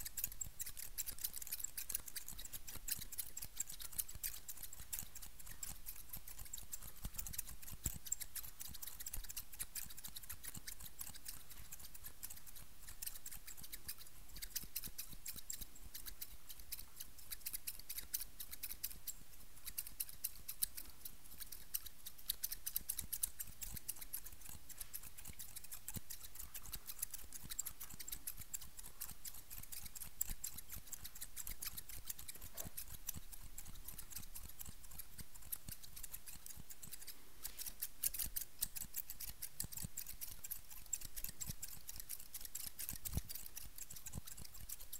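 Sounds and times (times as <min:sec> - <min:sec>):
scissors snipping: 0:00.0 - 0:44.9.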